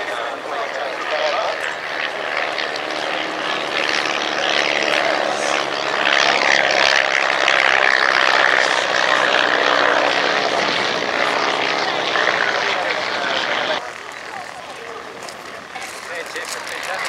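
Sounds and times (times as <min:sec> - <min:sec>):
propeller plane droning: 0:00.0 - 0:17.0.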